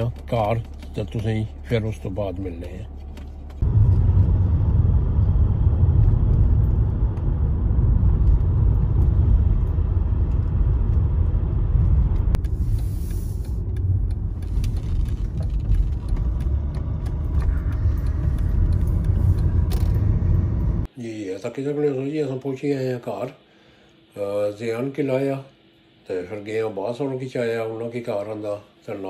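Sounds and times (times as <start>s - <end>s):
road and engine rumble in car: 0.0s - 20.9s.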